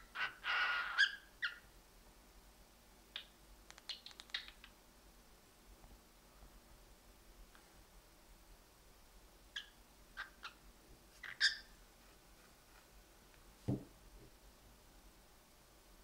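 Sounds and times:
cockatiels chirping: 0:00.1 - 0:01.6, 0:09.6 - 0:10.6, 0:11.2 - 0:11.7
low thump: 0:13.7 - 0:13.9.

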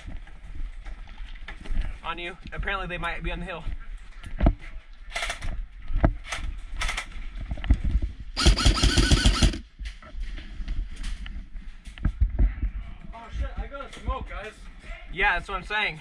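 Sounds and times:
airsoft rifle burst: 0:08.4 - 0:09.6.

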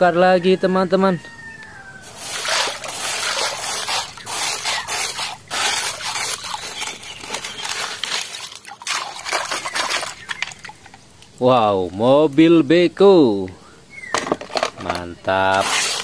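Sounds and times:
toy swishing through water: 0:02.0 - 0:11.3
wet gravel rattling: 0:02.0 - 0:12.1.

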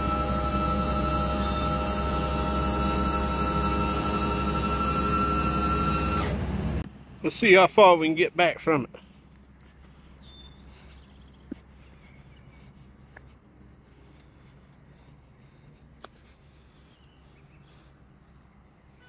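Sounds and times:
steady low hum: 0:00.0 - 0:07.3
footsteps on grass and gravel: 0:08.4 - 0:19.0.

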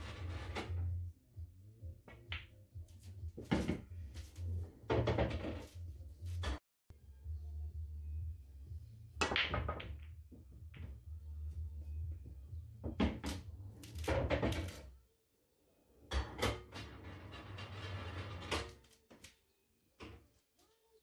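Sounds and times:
pool balls clacking: 0:09.2 - 0:11.0.

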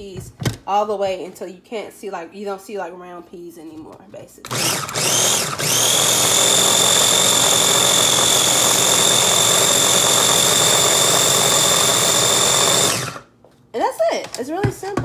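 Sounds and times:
food chopper motor whining: 0:04.5 - 0:13.3.

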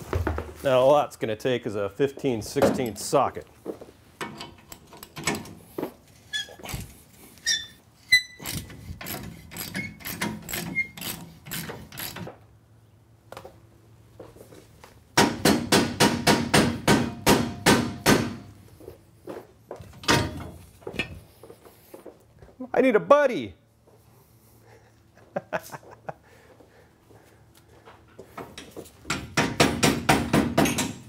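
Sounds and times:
metal clunk: 0:19.9 - 0:21.2.

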